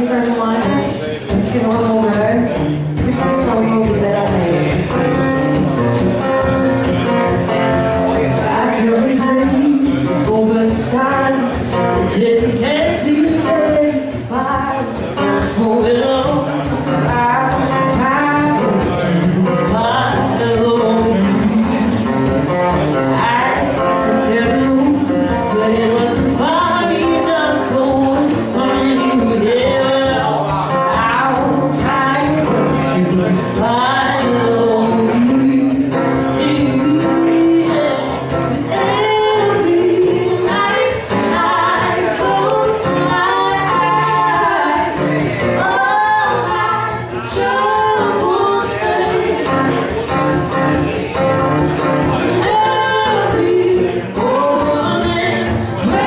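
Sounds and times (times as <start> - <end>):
woman singing slow song: 0.0 - 5.4, 8.2 - 50.0, 52.1 - 56.0
acoustic guitar playing: 0.0 - 56.0.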